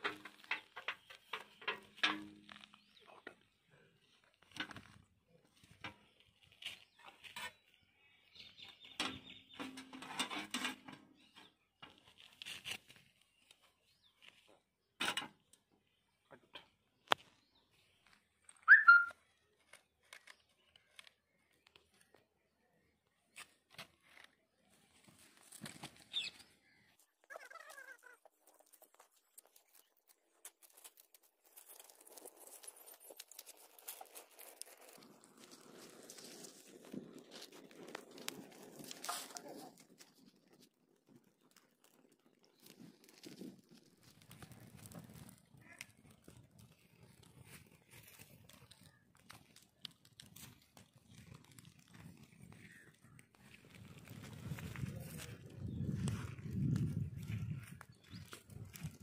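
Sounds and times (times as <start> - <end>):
sticks and leaves rustling: 10.6 - 14.7, 17.0 - 22.2, 23.3 - 59.0
bird chirping: 17.4 - 19.2, 26.1 - 28.1
kindling crackling: 27.4 - 59.0.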